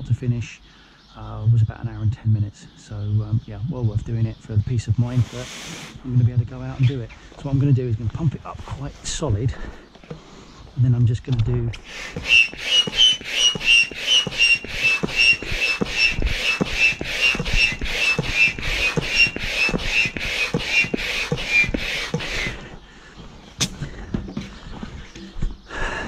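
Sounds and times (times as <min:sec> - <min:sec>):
hand pump strokes hissing air: 0:05.0 - 0:06.1, 0:11.8 - 0:22.7.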